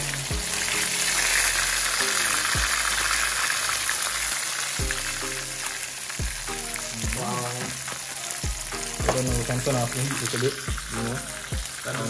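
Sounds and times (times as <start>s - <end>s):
fish sizzling in hot oil: 0.0s - 12.0s.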